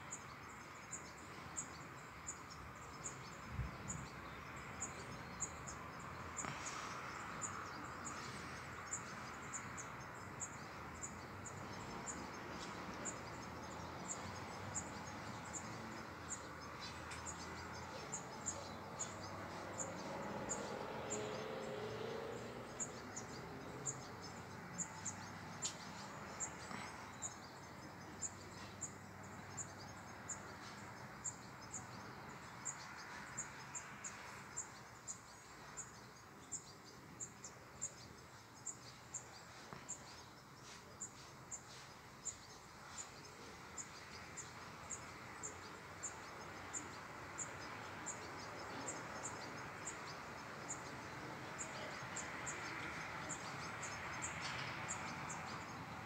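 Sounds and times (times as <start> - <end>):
outdoor hiss: 6.3 - 8.9.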